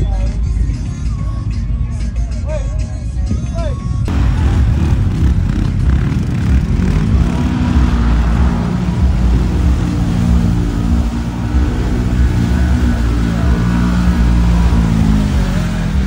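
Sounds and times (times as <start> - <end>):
engine revving: 4.1 - 16.0
water and mud splashing: 4.1 - 16.0.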